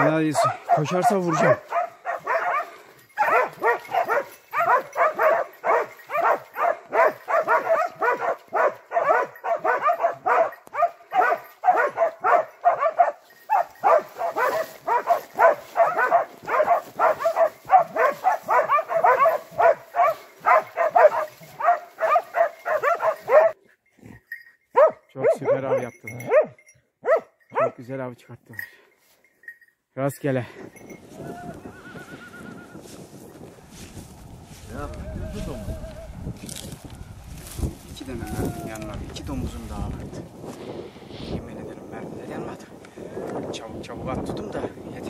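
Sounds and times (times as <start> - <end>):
pack of hounds barking: 0.0 - 23.6, 24.7 - 27.8.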